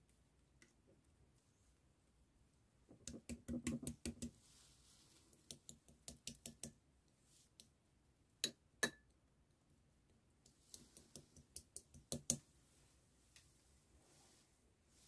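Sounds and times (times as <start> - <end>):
plastic tapping glass: 8.4 - 9.0.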